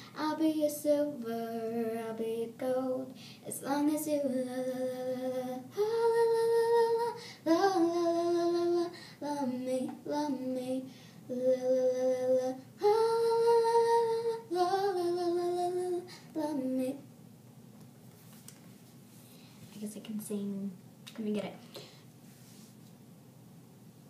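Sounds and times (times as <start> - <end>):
girl singing unaccompanied: 0.0 - 17.1.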